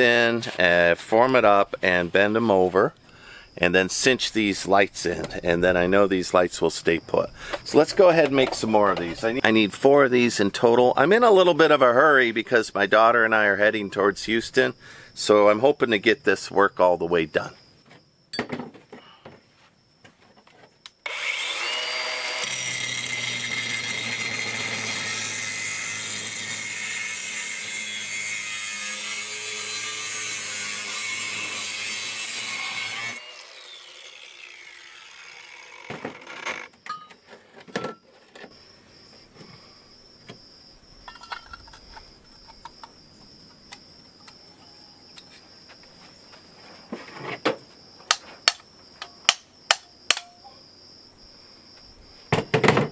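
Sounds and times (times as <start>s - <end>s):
angle grinder cutting steel: 21.0s - 36.7s
light knocks and clinks: 36.8s - 38.1s, 41.0s - 42.8s.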